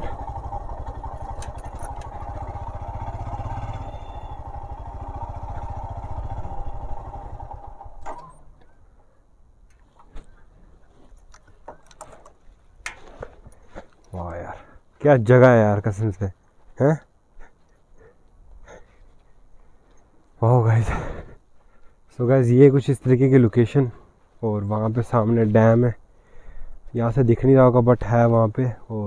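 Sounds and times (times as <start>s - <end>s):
motorcycle engine running: 0.0s - 8.1s.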